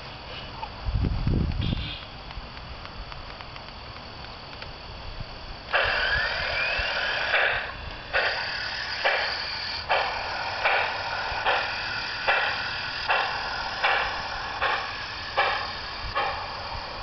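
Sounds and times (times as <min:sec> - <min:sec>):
model steam locomotive chuffs: 0:05.7 - 0:17.0.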